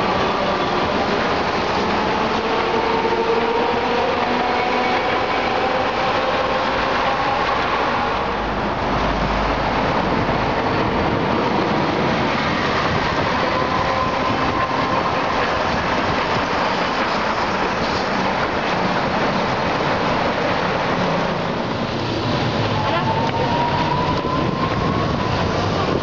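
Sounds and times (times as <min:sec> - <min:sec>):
bus passing: 0:00.0 - 0:26.0
road traffic: 0:00.0 - 0:26.0
streetcar wheels and motors rumbling: 0:00.0 - 0:26.0.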